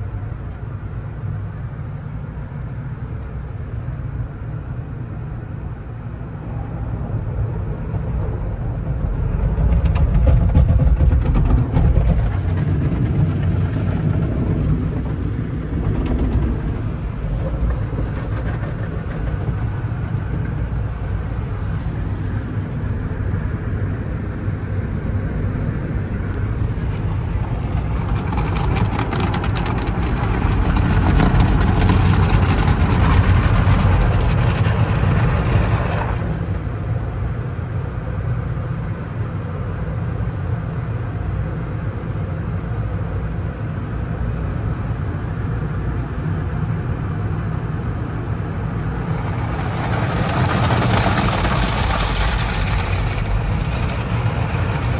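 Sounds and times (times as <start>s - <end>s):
steady low rumble: 0.0s - 54.9s
car wash brushes: 26.4s - 36.7s, 49.0s - 54.9s.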